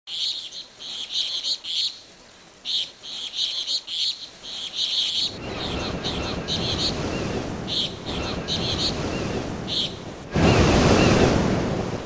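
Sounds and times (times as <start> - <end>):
low rushing noise: 5.2 - 12.0.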